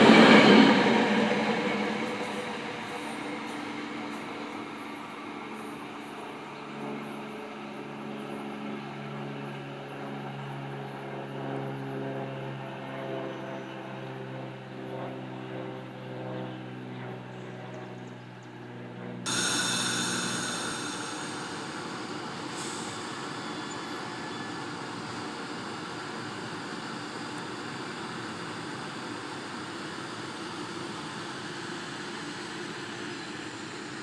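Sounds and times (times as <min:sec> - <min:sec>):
passenger cars rushing past on rails: 0:00.0 - 0:06.5, 0:19.3 - 0:25.4
electric train humming: 0:00.0 - 0:07.8, 0:19.3 - 0:34.0.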